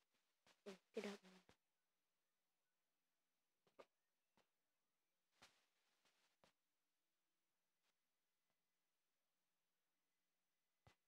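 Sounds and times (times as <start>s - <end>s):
soft rustle: 5.4s - 6.5s.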